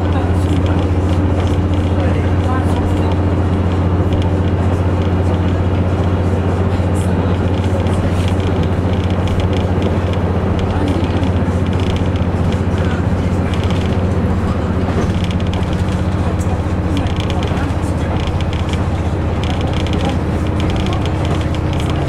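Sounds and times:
diesel engine drone: 0.0s - 22.0s
rumbling rail noise: 0.0s - 22.0s.

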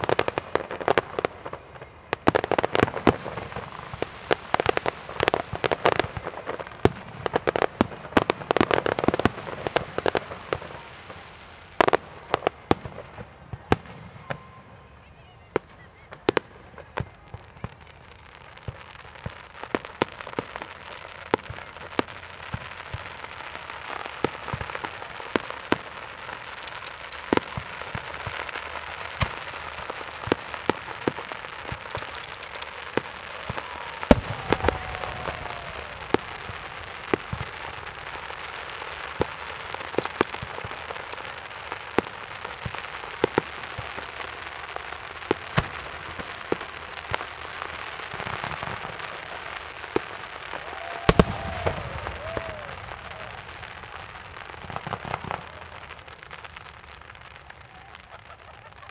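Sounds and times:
fireworks crackling: 0.0s - 58.9s
fireworks popping: 0.0s - 58.9s
loud firework bang: 50.7s - 53.3s.

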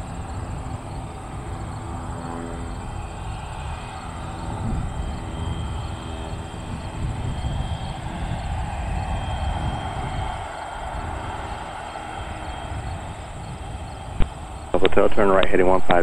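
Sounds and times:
jet engines whining while taxiing: 0.0s - 16.0s.

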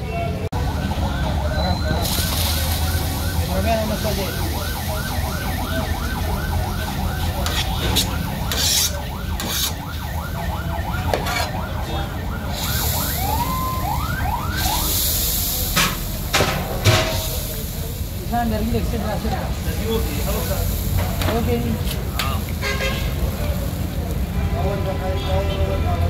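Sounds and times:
emergency siren yelping: 0.5s - 17.6s.

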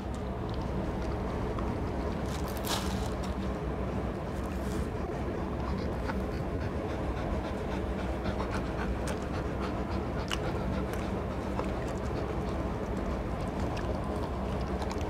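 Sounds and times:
dogs panting: 4.2s - 15.0s.

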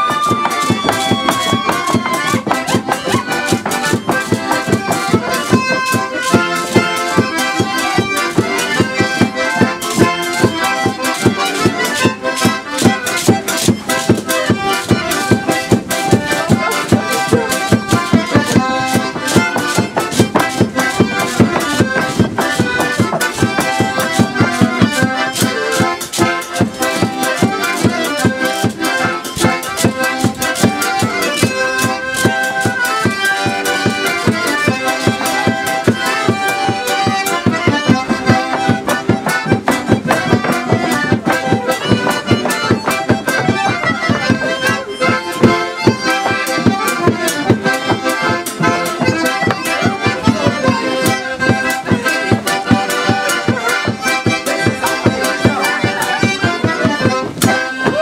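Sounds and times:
accordions playing folk dance tune: 0.0s - 58.0s
drum beating quick rhythm: 0.0s - 58.0s.

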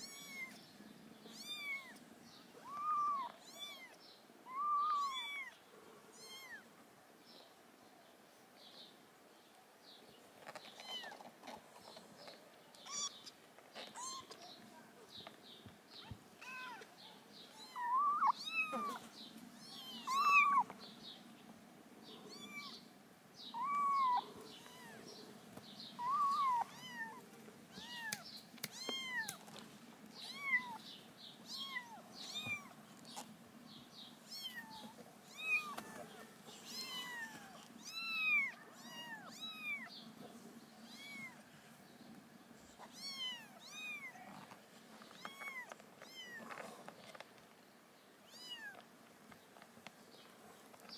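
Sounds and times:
kittens mewing: 17.5s - 20.7s, 23.6s - 25.1s, 26.0s - 29.4s.

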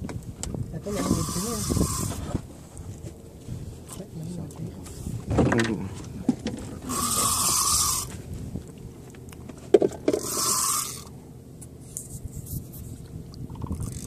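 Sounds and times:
fishing reel whirring: 0.9s - 2.2s, 6.8s - 8.1s, 10.1s - 11.2s, 13.5s - 14.0s.

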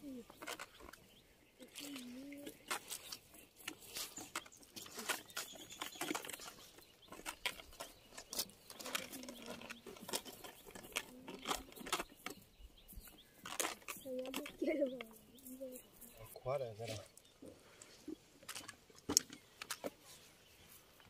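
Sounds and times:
nylon net rustling and crackling: 1.6s - 12.2s, 13.3s - 17.0s.

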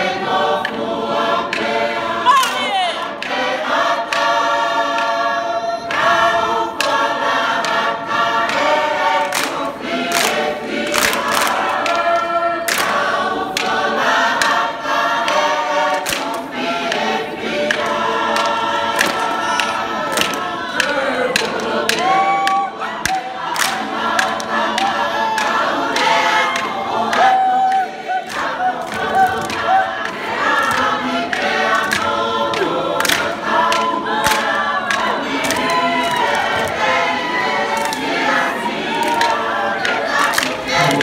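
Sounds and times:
mixed choir singing in harmony: 0.0s - 41.0s
sharp hand claps: 7.6s - 14.6s, 15.2s - 41.0s.

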